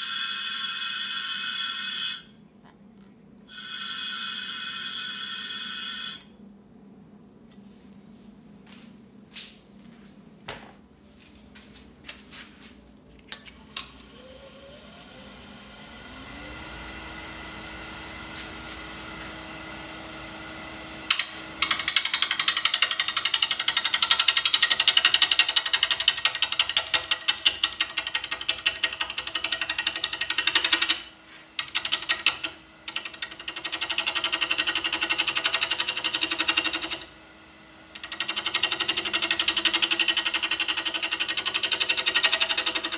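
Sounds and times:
wood lathe motor humming: 13.5s - 42.9s.

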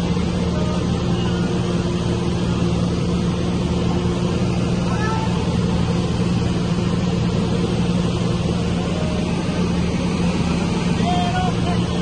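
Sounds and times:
propeller plane engine droning: 0.0s - 12.0s.

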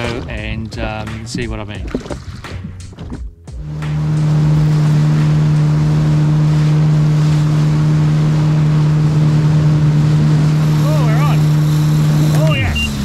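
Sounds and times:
jet ski engine drone: 3.5s - 13.0s.

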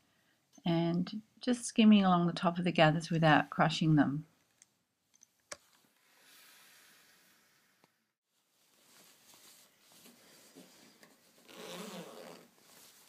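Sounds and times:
fabric rustling: 8.2s - 13.0s
zip being pulled: 11.4s - 12.6s.

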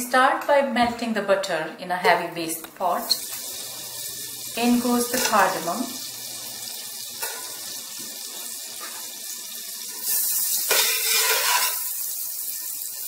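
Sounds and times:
butter sizzling in a pot: 2.8s - 13.0s.

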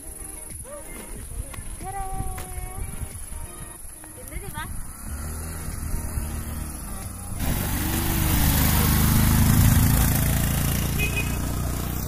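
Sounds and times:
motorcycle engine running: 4.3s - 12.0s.

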